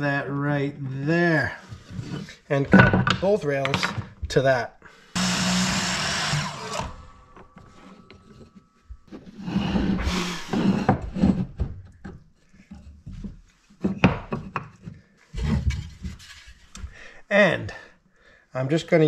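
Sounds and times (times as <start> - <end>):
wood scraping: 1.2 - 4.5, 5.2 - 17.0
wood sliding on workbench: 6.7 - 11.6.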